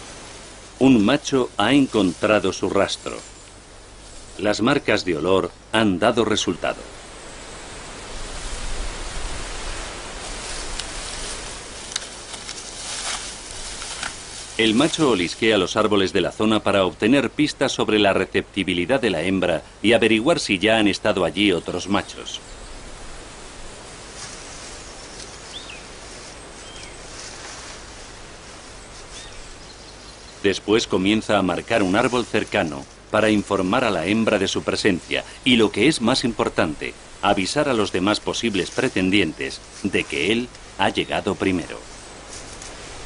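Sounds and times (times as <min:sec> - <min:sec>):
forest ambience hiss: 0:00.0 - 0:43.0
light snaps and rustles: 0:10.5 - 0:14.6, 0:24.2 - 0:25.5, 0:42.3 - 0:42.8
falling bird chirps: 0:24.7 - 0:27.1, 0:28.8 - 0:30.5.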